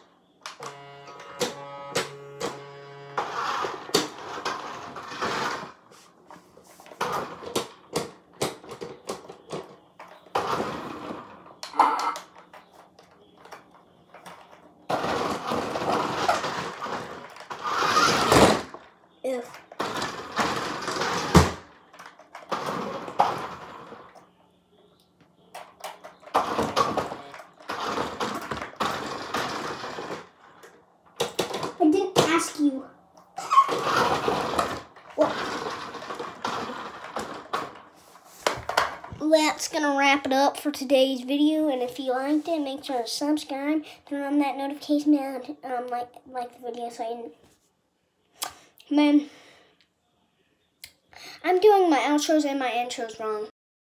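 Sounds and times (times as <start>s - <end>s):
toy truck motor whirring: 0.4s - 5.8s, 8.8s - 24.3s, 25.6s - 32.0s, 33.4s - 39.2s
plastic clicks and knocks: 25.0s - 32.4s.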